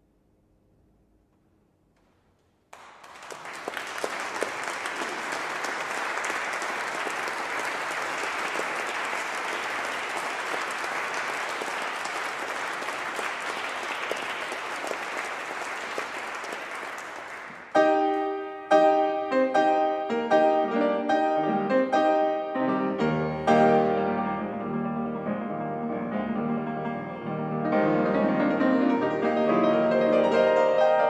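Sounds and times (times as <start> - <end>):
audience applauding: 2.7 - 17.8
grand piano playing: 17.6 - 31.0.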